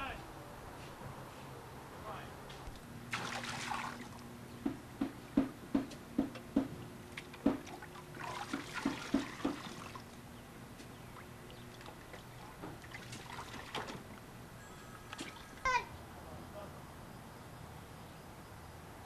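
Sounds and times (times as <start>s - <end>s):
water pouring and splashing: 3.1s - 4.2s, 7.1s - 10.2s, 11.7s - 14.2s
short knocks: 4.6s - 6.8s, 7.4s - 7.8s, 8.5s - 9.8s.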